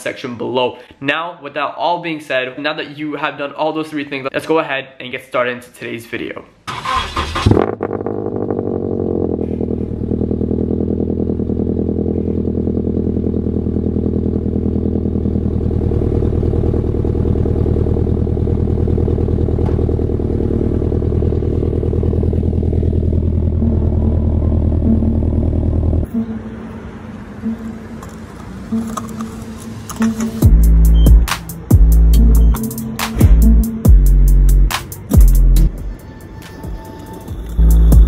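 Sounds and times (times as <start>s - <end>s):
car engine starting and idling: 6.6s - 36.0s, 37.0s - 38.0s.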